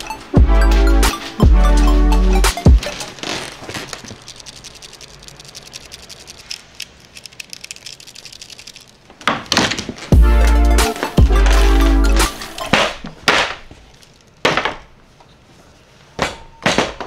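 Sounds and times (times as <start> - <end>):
music with heavy bass beat: 0.0 - 3.0, 10.2 - 12.6
camera strap rings rattling: 3.8 - 9.1.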